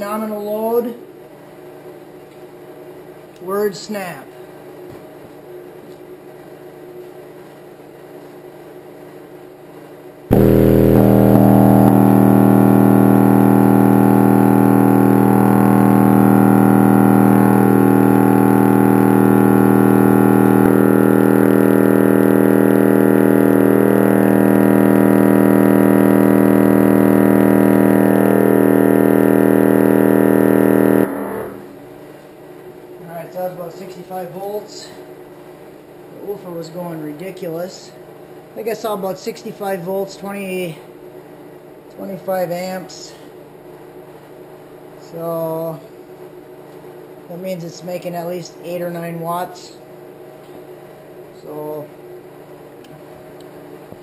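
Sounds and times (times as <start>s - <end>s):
loud buzzing test tone: 10.3s - 31.9s.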